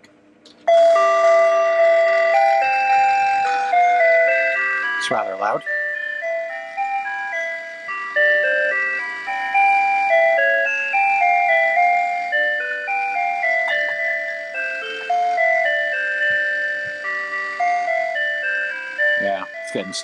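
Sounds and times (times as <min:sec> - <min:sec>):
chiming electronic holiday tune: 0:00.6 - 0:20.0.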